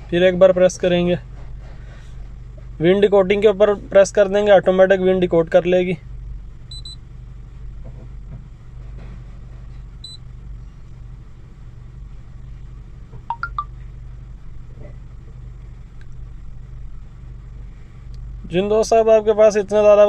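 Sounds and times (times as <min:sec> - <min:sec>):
car engine idling: 0:10.2 - 0:20.0
short electronic beep: 0:13.3 - 0:13.7.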